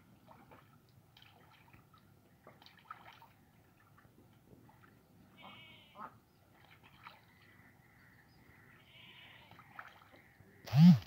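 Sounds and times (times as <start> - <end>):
duck dabbling in water: 0.2 - 5.0, 9.5 - 10.3.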